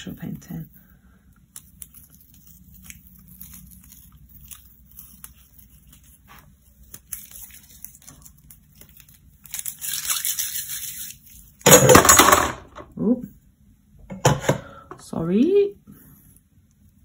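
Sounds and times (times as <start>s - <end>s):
tape peeling off paper: 1.5s - 11.6s.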